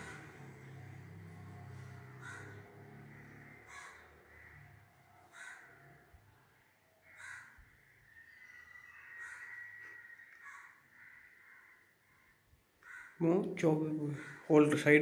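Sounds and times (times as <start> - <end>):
crow cawing: 0.0 - 6.1, 7.0 - 13.2, 14.1 - 14.8
low drone: 0.0 - 6.8.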